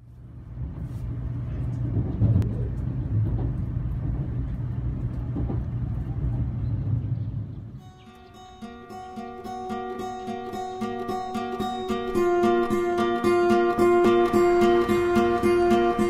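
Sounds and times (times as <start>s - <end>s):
train wheels rumbling: 0.5s - 8.0s.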